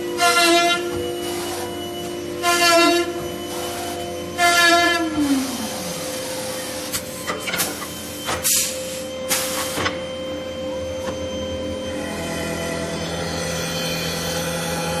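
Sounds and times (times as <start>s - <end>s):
wood lathe whining: 0.0s - 7.3s.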